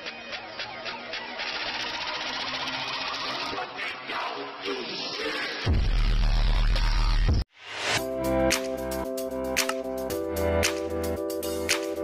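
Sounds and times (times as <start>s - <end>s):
background music with beat: 6.8s - 12.0s.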